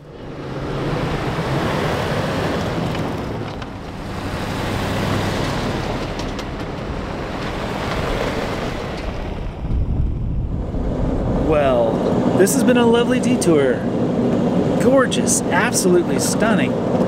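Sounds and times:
wind buffeting microphone: 0.0s - 15.5s.

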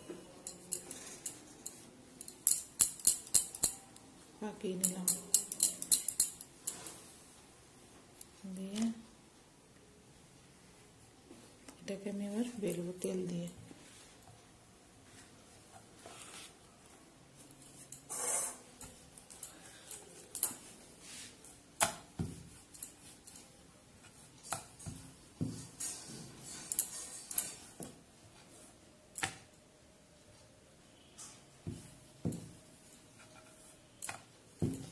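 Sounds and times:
short rubbing hiss: 18.1s - 18.8s.

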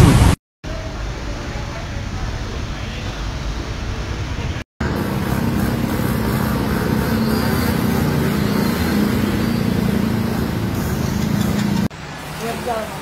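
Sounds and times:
motorbike and car engines: 3.5s - 13.0s.

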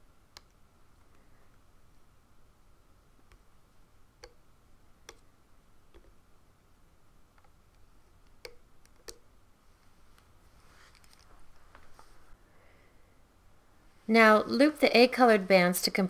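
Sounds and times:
soft rustle: 9.6s - 12.4s.

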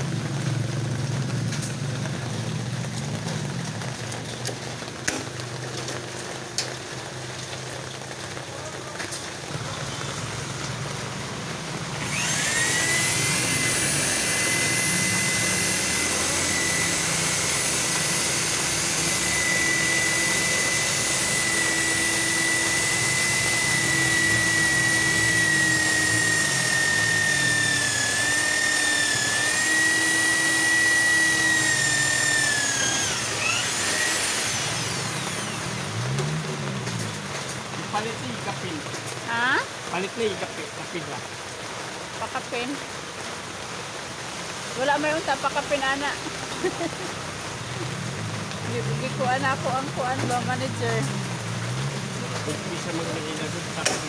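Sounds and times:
electric drill drilling into metal: 12.0s - 38.2s.

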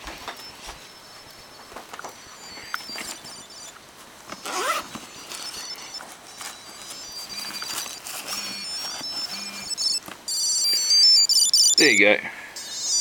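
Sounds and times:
muffled ringing melody: 0.0s - 13.0s
hands rummaging in a bag: 4.2s - 10.2s.

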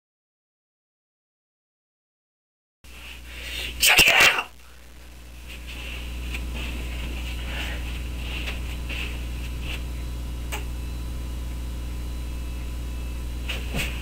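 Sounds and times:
person moving about rustling: 2.9s - 3.7s, 4.7s - 10.1s, 13.4s - 14.0s
low electrical hum: 2.9s - 14.0s.

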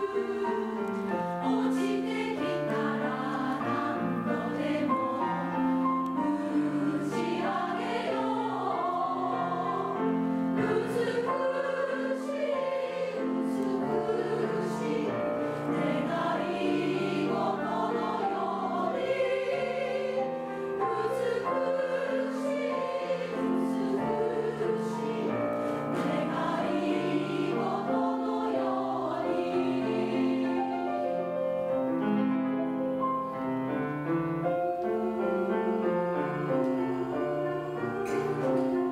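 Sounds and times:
women's choir singing: 0.0s - 31.7s, 34.4s - 38.9s
grand piano accompaniment: 0.0s - 38.9s.

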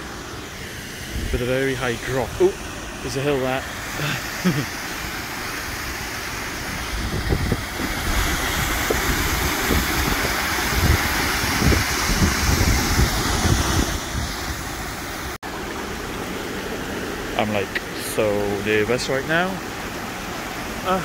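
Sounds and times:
waterfall rushing: 0.0s - 21.0s
wind buffeting microphone: 1.0s - 2.6s, 6.7s - 15.1s.

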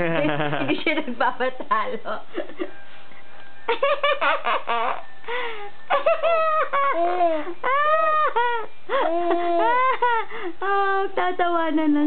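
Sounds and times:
person laughing: 0.0s - 1.0s, 5.9s - 10.3s
baby squealing: 4.1s - 5.1s, 5.9s - 10.0s.

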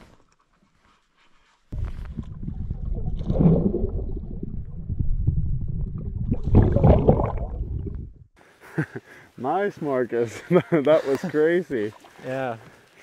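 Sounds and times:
muffled underwater rumble: 1.8s - 8.3s.

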